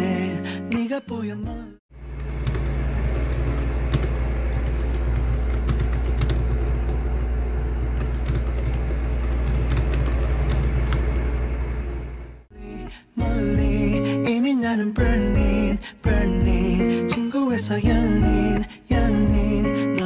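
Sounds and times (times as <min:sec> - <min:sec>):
steady low hum: 0:02.0 - 0:12.5
fast keyboard typing: 0:02.1 - 0:11.1.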